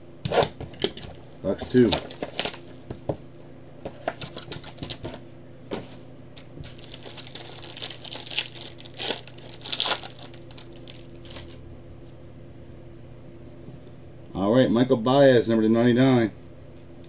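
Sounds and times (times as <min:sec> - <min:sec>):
low steady hum: 0:00.0 - 0:17.0
plastic wrapping crinkling and tearing: 0:00.8 - 0:02.9, 0:04.2 - 0:05.0, 0:06.6 - 0:11.6.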